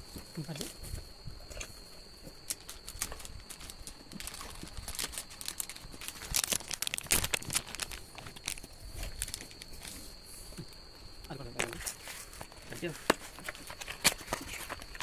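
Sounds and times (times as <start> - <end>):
plastic packaging crinkling: 2.4 - 9.9, 11.6 - 15.0.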